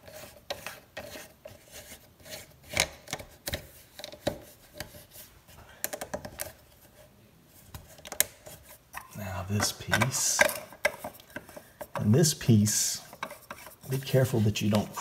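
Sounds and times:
plastic rubbing: 0.0 - 15.0
plastic parts clicking and knocking: 2.6 - 5.0, 5.8 - 6.6, 7.7 - 12.2, 13.1 - 13.9.

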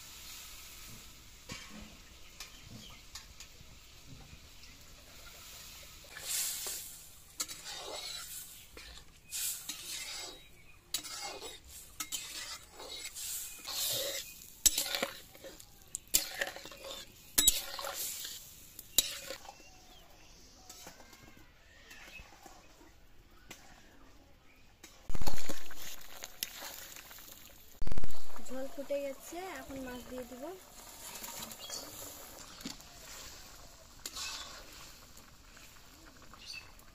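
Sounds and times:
metal spatula scraping a pan: 0.8 - 3.6, 5.0 - 19.6, 28.4 - 35.8.

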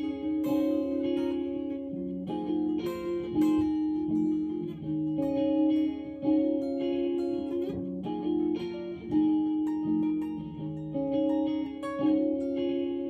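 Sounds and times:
guitar picking chords: 0.0 - 13.0.

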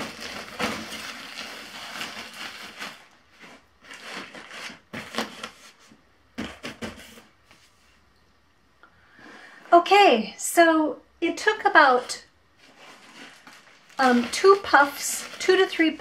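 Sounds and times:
nylon fabric rustling: 11.8 - 16.0.

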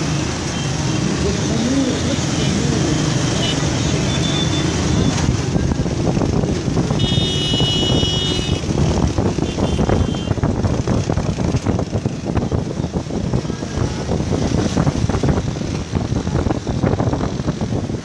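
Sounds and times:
dense traffic noise: 0.0 - 18.0.

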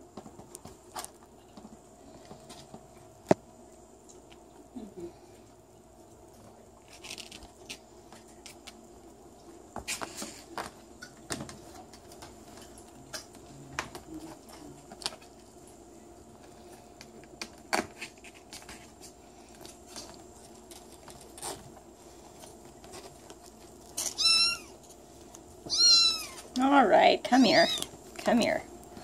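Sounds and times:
kittens tapping and rustling: 0.0 - 4.7, 6.0 - 26.6
kitten meowing: 24.1 - 24.8, 25.7 - 26.5, 27.4 - 27.9.

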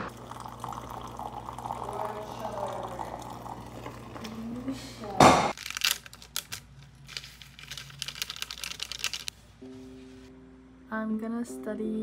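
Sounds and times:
liquid pouring into a bowl: 0.1 - 4.4
plastic packet crinkling: 5.5 - 9.3.

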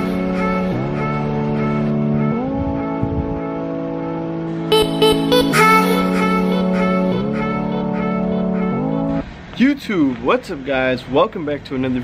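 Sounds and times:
sustained chords music: 0.0 - 9.3.

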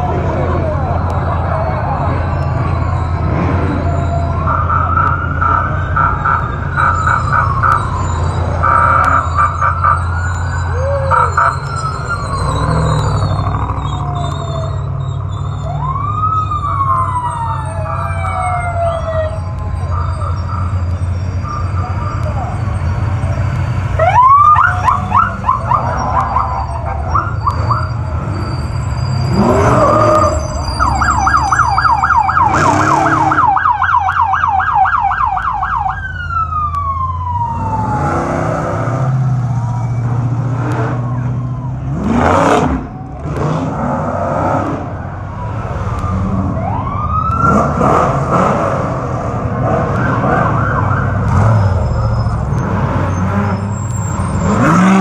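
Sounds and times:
electronic sirens whooping: 0.0 - 55.0
truck engines rumbling: 0.0 - 55.0.

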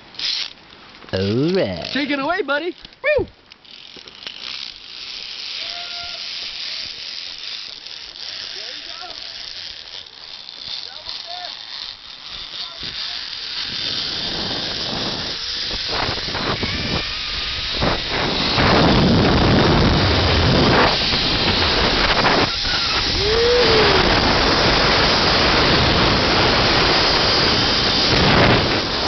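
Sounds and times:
pulleys running along cable: 0.0 - 29.0
wind rushing over microphone: 13.6 - 29.0.

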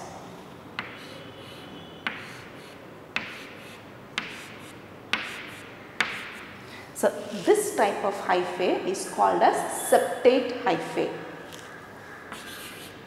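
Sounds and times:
chalk tapping and scraping on chalkboard: 0.8 - 6.5, 12.3 - 13.0.

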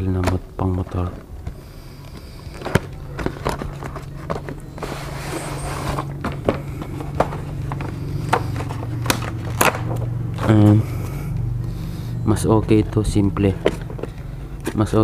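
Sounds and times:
low hum: 0.0 - 15.0
foam tray scraping: 2.6 - 9.8.

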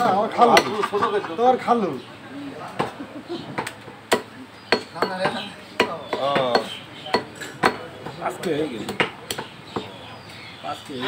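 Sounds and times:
cleaver chopping meat on wood: 3.6 - 10.0.

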